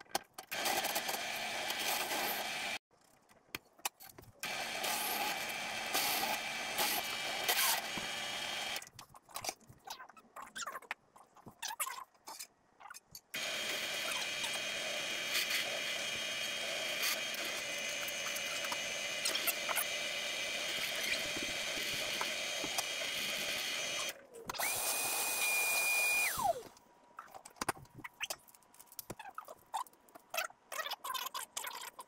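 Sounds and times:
drill press whining: 0:04.4 - 0:08.8, 0:13.4 - 0:26.8.

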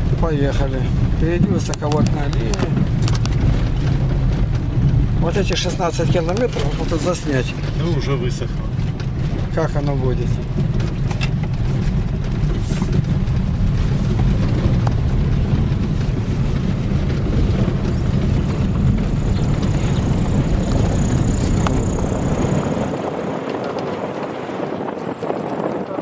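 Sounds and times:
car engine and tyre rumble: 0:00.0 - 0:26.0.

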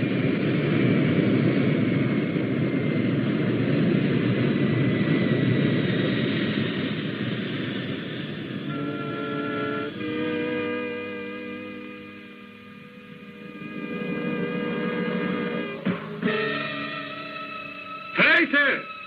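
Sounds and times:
spacecraft engine rumble: 0:00.0 - 0:10.2
falling whine: 0:00.0 - 0:19.0
sustained music notes: 0:08.5 - 0:19.0.

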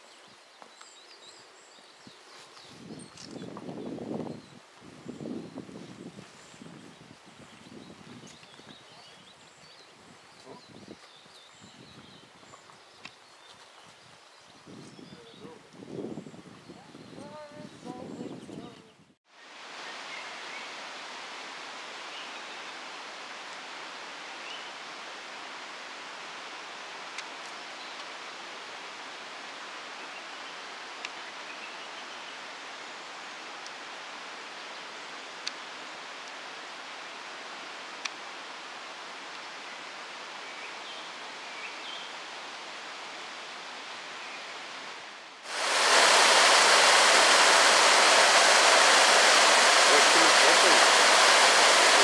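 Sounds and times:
steady outdoor hiss: 0:00.0 - 0:16.4, 0:19.3 - 0:52.0
stream rushing over rocks: 0:45.4 - 0:52.0.

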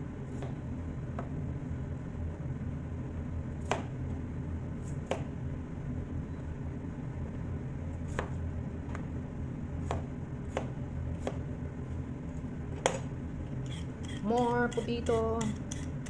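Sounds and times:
steady low hum: 0:00.0 - 0:16.0
knife chopping on cutting board: 0:03.6 - 0:03.9, 0:09.8 - 0:11.4.

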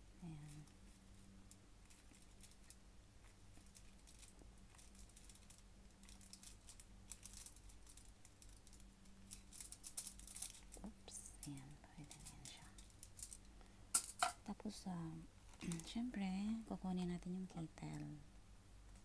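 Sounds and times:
foil crinkling: 0:00.5 - 0:10.9.

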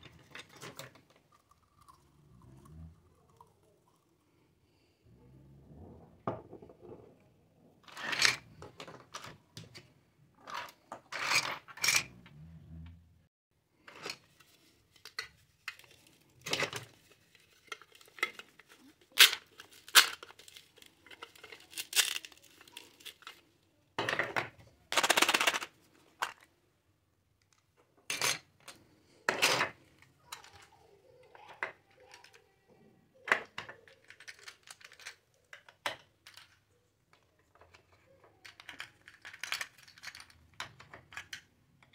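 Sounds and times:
plastic toy pieces clattering: 0:00.0 - 0:04.0, 0:07.8 - 0:12.2, 0:13.9 - 0:26.5, 0:27.4 - 0:32.5, 0:33.2 - 0:41.9
plastic pieces scraping: 0:07.8 - 0:09.8, 0:13.8 - 0:26.5, 0:37.5 - 0:41.5.

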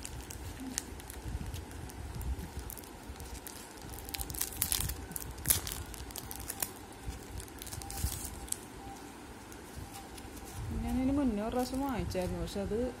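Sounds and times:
clicks and crackles: 0:00.0 - 0:08.7
packaging crinkling and rustling: 0:00.0 - 0:12.3.

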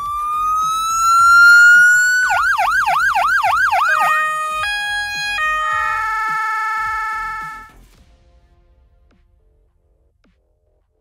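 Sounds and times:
electronic siren wailing and yelping: 0:00.0 - 0:07.7.

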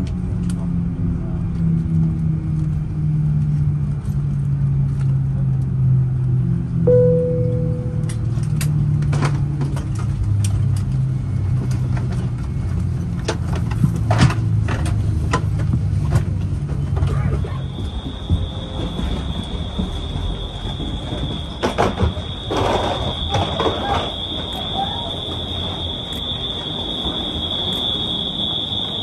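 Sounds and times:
steady high-pitched tone: 0:06.9 - 0:08.6, 0:17.6 - 0:29.0
aircraft cabin hum: 0:06.9 - 0:29.0.

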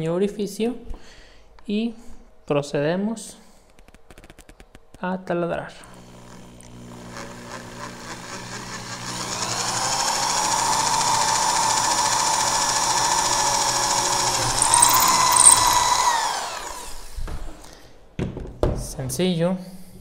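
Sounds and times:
electric drill boring into wood: 0:06.1 - 0:17.2.

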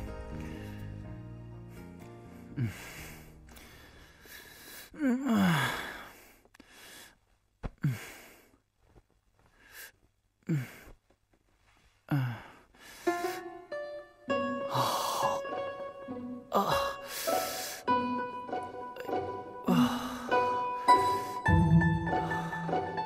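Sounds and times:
man sighing and groaning: 0:02.4 - 0:03.8, 0:04.7 - 0:06.3, 0:07.6 - 0:08.5, 0:10.4 - 0:11.0, 0:12.1 - 0:12.7, 0:14.7 - 0:15.5, 0:16.5 - 0:17.8, 0:19.0 - 0:23.0.

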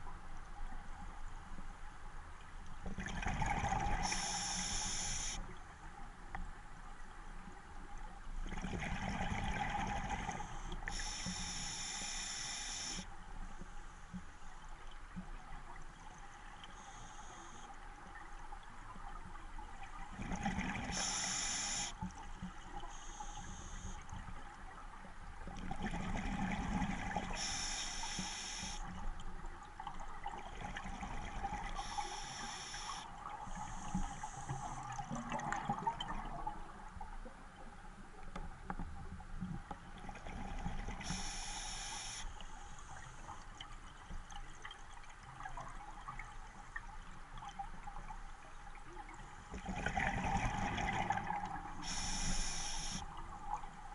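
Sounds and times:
exhaled air bubbling underwater: 0:02.8 - 0:05.6, 0:08.4 - 0:13.0, 0:15.3 - 0:37.6, 0:39.6 - 0:53.9
regulator inhale hiss: 0:04.0 - 0:05.5, 0:10.4 - 0:13.1, 0:16.6 - 0:17.8, 0:20.9 - 0:22.1, 0:22.8 - 0:24.1, 0:27.3 - 0:28.9, 0:31.8 - 0:35.0, 0:41.0 - 0:43.3, 0:51.8 - 0:53.1.

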